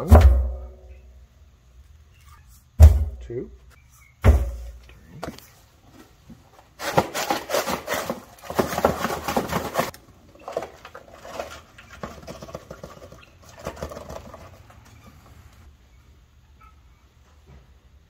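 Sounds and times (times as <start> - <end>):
powder scraping and patter: 5.3 - 15.4.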